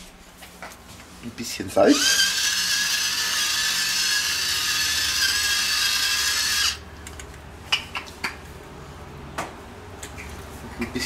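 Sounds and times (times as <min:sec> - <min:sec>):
electric salt mill grinding: 0:01.9 - 0:06.8.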